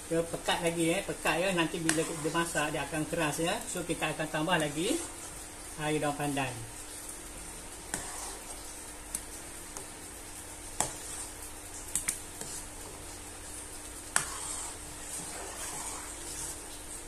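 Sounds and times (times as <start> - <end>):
ladle stirring thick batter: 0.0 - 17.0.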